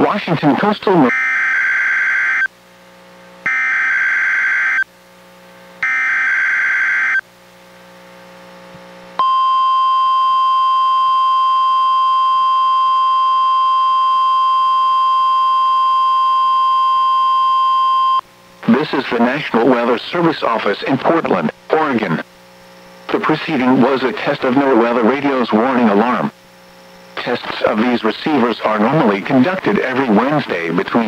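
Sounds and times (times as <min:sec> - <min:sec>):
steady warning alarm tone: 0:01.0 - 0:02.5, 0:03.4 - 0:04.9, 0:05.8 - 0:07.2.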